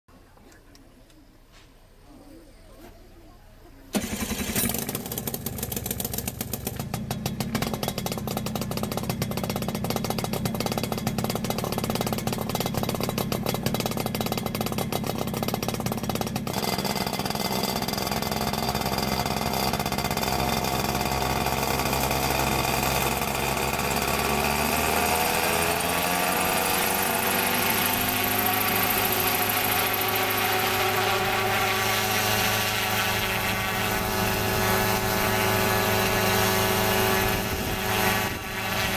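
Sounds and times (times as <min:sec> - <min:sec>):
helicopter engine puttering: 0:03.9 - 0:38.9
rising engine and rotor whine: 0:15.2 - 0:38.9.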